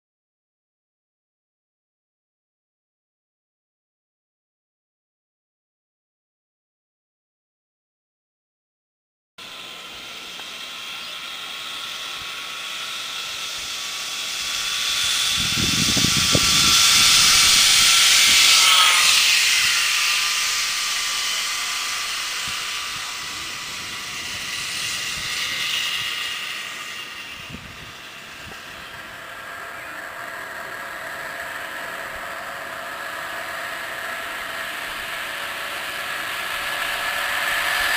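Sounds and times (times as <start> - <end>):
zip line trolley whirring on cable: 9.4 - 37.9
wind rumble on microphone: 14.5 - 18.6, 27.4 - 28.8.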